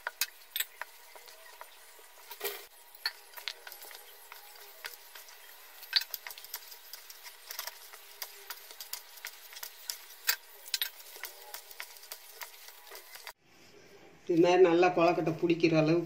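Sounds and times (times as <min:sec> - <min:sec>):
spoon scraping a steel bowl: 0:00.1 - 0:13.4.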